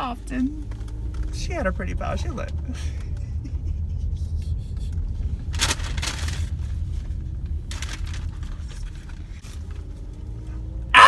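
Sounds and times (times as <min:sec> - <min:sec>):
low rumble of car: 0:00.0 - 0:11.0
paper food wrapper rustling: 0:05.5 - 0:10.0.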